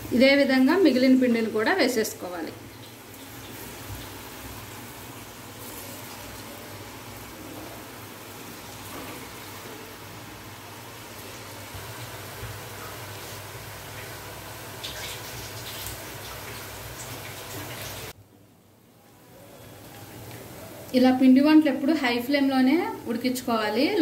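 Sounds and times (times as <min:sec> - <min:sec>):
hot oil sizzling and bubbling: 0:00.0 - 0:18.2.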